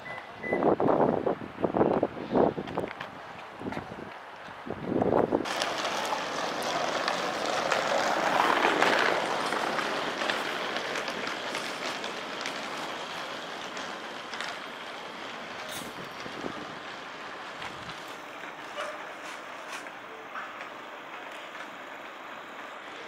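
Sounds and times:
outdoor rushing noise: 0.7s - 23.0s.

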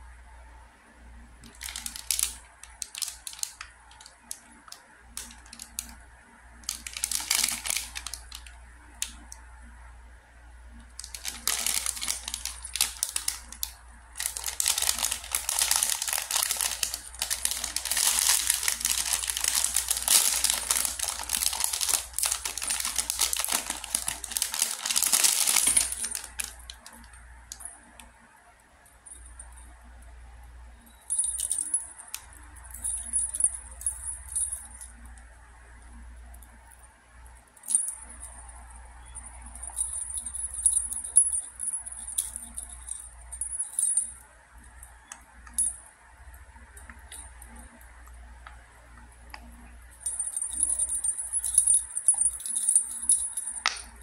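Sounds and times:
plastic bag crinkling: 1.5s - 5.9s, 6.6s - 9.1s, 11.0s - 27.7s
metal ring and bell jingling: 50.0s - 53.7s.

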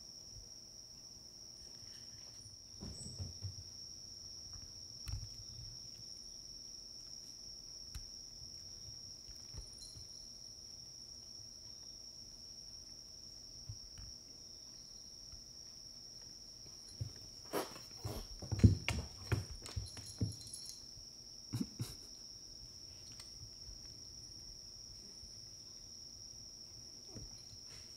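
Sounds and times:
crickets chirping: 0.0s - 27.9s
soft knocks and thumps: 2.8s - 3.7s, 16.9s - 20.7s.

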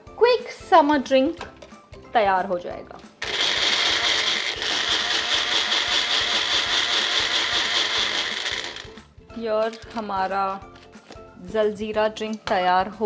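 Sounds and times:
kitchen blender whirring: 3.2s - 9.0s.

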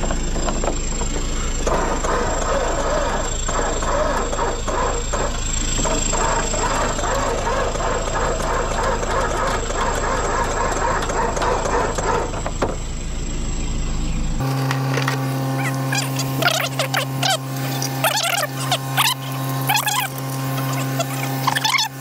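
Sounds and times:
clattering and knocks: 0.0s - 1.9s
steady hum: 0.0s - 22.0s
vehicle engine running: 0.0s - 22.0s.

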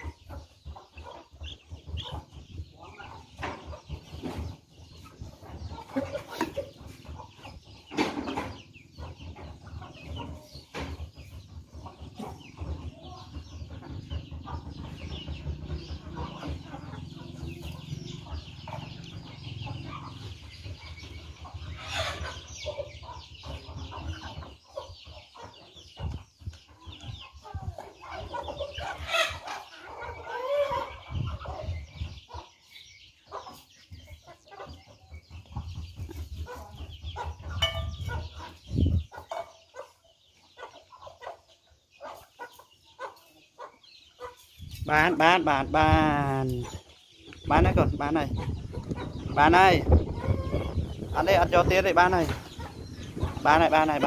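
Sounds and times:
chickens clucking: 0.0s - 54.0s
loud chicken calls: 27.5s - 32.4s, 48.4s - 51.3s.

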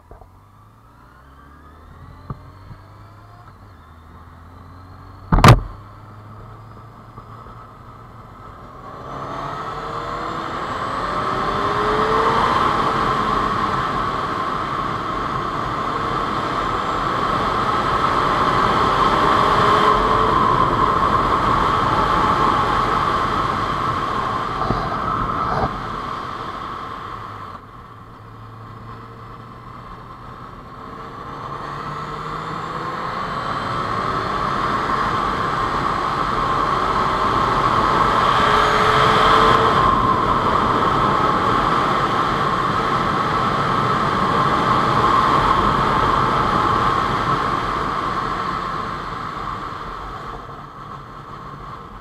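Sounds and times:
motorcycle engine accelerating: 0.0s - 52.0s
sharp knock: 5.3s - 5.7s
wind rush on camera: 8.4s - 52.0s.

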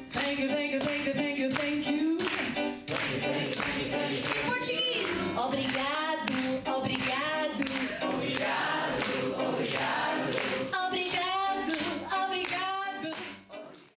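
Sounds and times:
hand clapping: 0.0s - 14.0s
voices singing together: 2.9s - 5.8s, 7.2s - 12.1s.

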